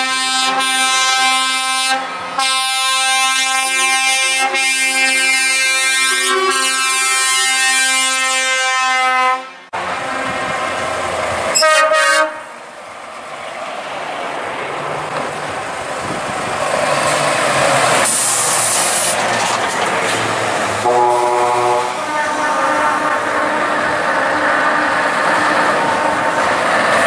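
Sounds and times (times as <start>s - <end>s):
truck air horns: 0.0s - 10.3s, 11.5s - 12.6s, 20.8s - 26.6s
diesel truck engine passing: 9.8s - 27.0s
sharp air hiss: 18.0s - 19.3s.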